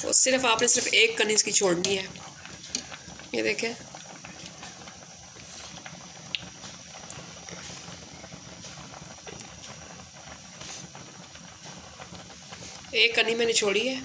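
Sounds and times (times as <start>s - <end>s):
rice boiling and bubbling: 0.0s - 14.0s.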